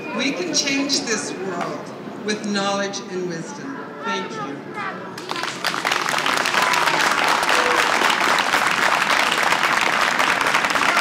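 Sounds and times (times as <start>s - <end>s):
crowd applauding: 5.2s - 11.0s.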